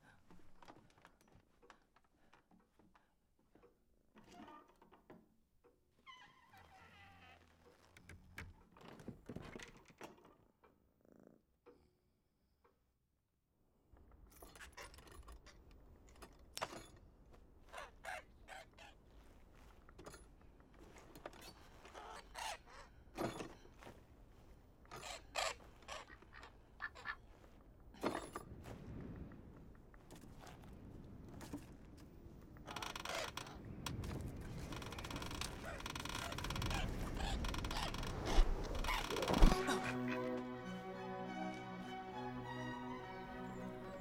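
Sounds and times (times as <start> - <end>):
short creaks: 4.2 - 10.4, 30.1 - 39.7
bird calls: 35.1 - 40.3.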